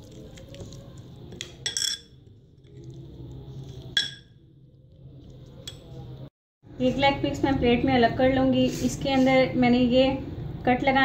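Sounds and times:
spoon scraping glass bowl: 0:00.1 - 0:04.3.

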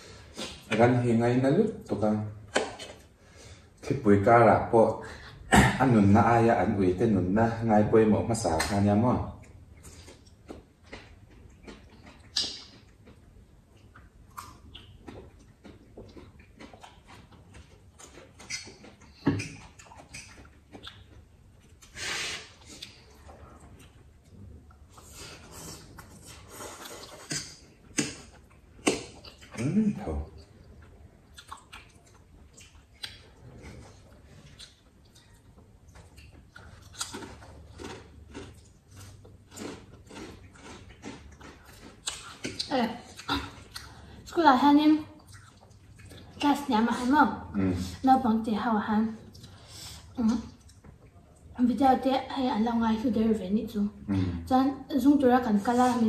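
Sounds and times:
chewing and crunching: 0:09.3 - 0:44.3, 0:45.0 - 0:47.1, 0:49.1 - 0:51.6
mouth clicks and smacks: 0:09.4 - 0:24.1, 0:24.7 - 0:38.8, 0:39.6 - 0:44.0.

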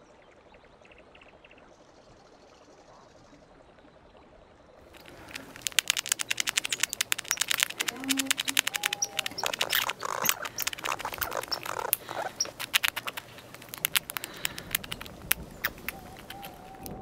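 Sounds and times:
squirrel chattering: 0:05.0 - 0:17.0.

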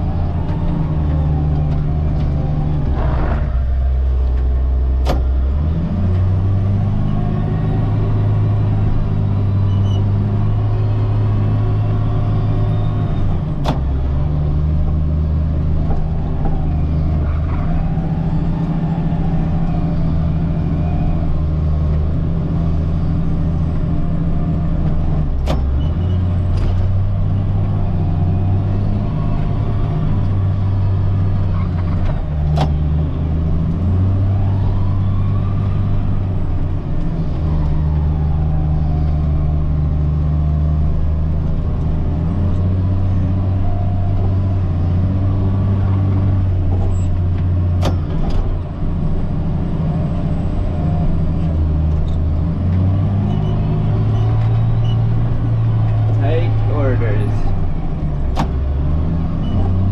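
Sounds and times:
wheel loader diesel engine: 0:00.0 - 0:59.9.

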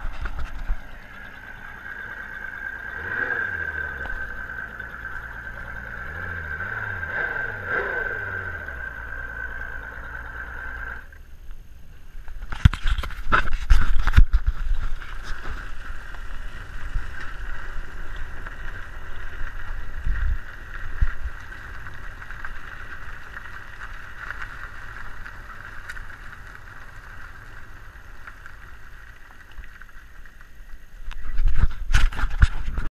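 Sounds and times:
road rumble: 0:00.0 - 0:32.9.

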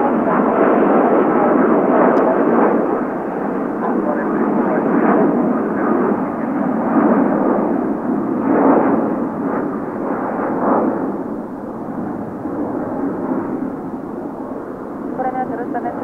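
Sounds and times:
jet airliner engines rumbling: 0:00.0 - 0:16.0.

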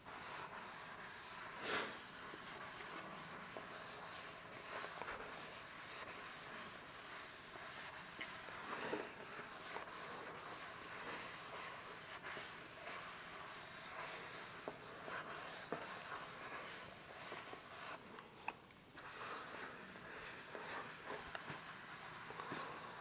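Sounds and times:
sponge squishes: 0:00.1 - 0:18.1
wet sponge rubbing: 0:00.1 - 0:18.2, 0:19.0 - 0:23.0.

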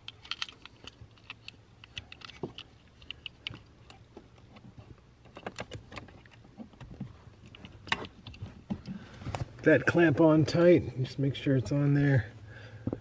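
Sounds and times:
metal keys clicking against plastic: 0:00.0 - 0:04.0.

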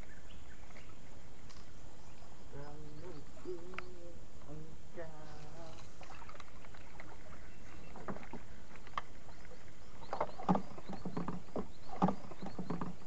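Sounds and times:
paddle splashing in water: 0:05.4 - 0:13.0.

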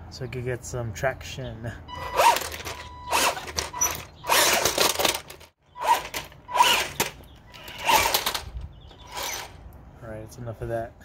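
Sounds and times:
electric motors whining: 0:02.0 - 0:09.6
tracks rattling on logs and asphalt: 0:02.0 - 0:09.6.

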